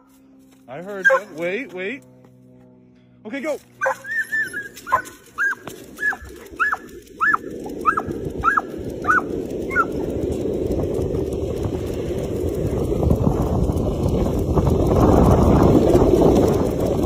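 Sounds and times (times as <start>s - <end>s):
dog yelping and whining: 1.0s - 1.4s, 3.8s - 10.0s
wind on microphone: 4.4s - 17.0s.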